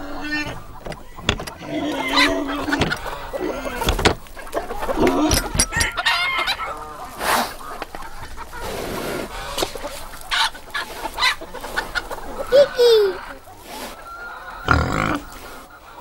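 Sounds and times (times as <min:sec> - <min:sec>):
chickens clucking: 0:00.0 - 0:16.0
fowl calling: 0:00.0 - 0:16.0.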